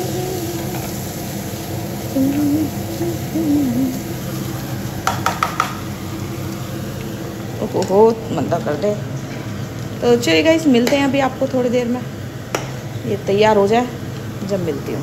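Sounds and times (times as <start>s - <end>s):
person humming: 0.0s - 1.0s, 2.1s - 4.2s.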